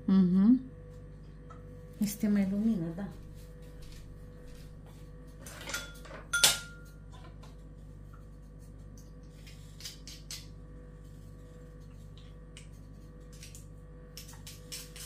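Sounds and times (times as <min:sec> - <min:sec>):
steady low hum: 0:00.0 - 0:15.0
metallic clank with ring: 0:05.7 - 0:06.9.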